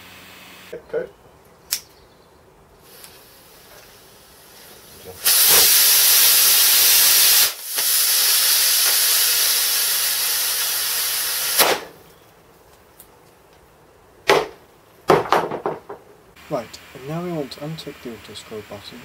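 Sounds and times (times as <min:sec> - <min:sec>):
fuse fizzing: 0:02.8 - 0:11.6
rocket motor thrust hiss: 0:02.8 - 0:12.0.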